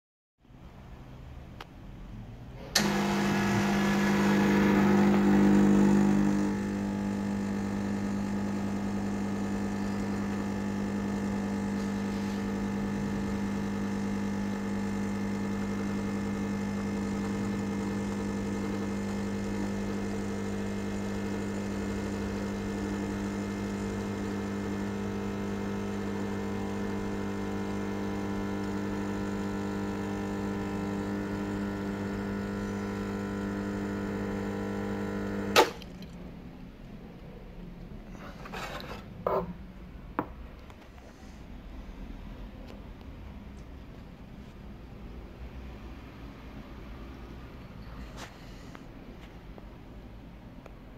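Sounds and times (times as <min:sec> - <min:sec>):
espresso pump buzzing: 0:02.8 - 0:36.2.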